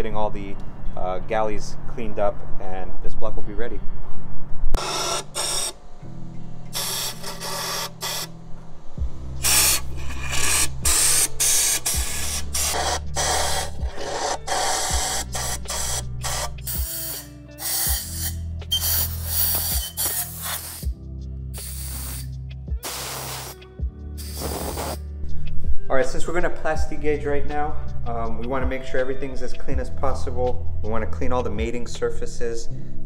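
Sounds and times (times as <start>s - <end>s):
background music with bass line: 4.8s - 33.0s
air gun hissing bursts: 6.8s - 8.3s, 9.4s - 20.9s, 21.6s - 23.6s, 24.2s - 25.0s.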